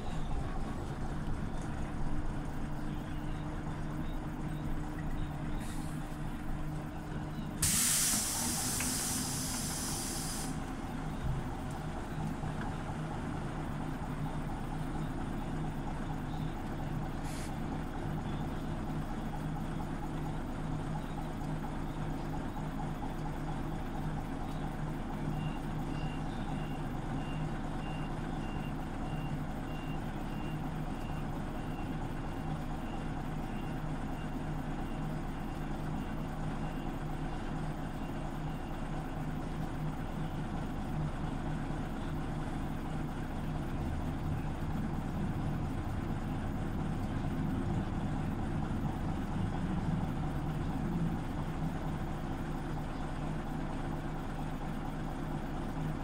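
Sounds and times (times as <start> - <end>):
bus engine running: 0.0 - 56.0
compressed air hiss: 7.6 - 10.6.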